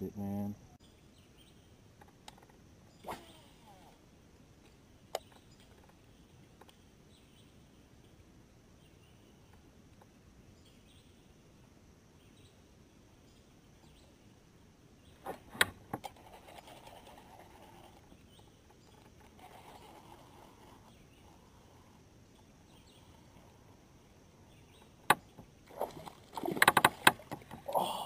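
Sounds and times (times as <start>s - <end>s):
quiet outdoor background: 0.0s - 28.0s
fishing reel whir: 19.3s - 21.8s.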